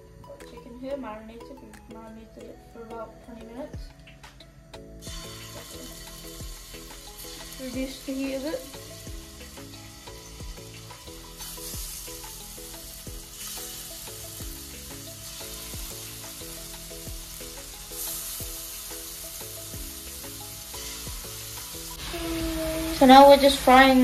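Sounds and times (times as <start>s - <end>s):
background music with steady beat: 0.0s - 24.0s
chicken sizzling in hot oil: 5.0s - 24.0s.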